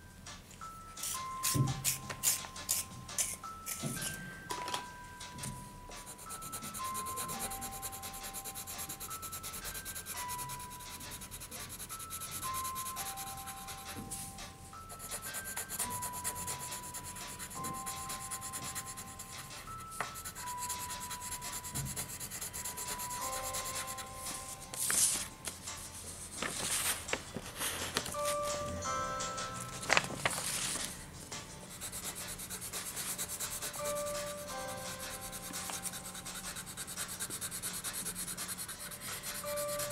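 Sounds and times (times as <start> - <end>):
simple tune of clear notes: 0.0 - 37.5
coloured pencil scratching on paper: 6.0 - 14.3, 14.9 - 25.3, 31.8 - 39.9.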